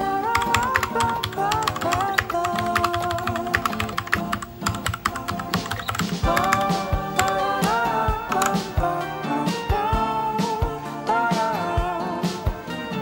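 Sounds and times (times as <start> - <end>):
background music with melody: 0.0 - 13.0
mechanical keyboard key clacks: 0.4 - 8.6.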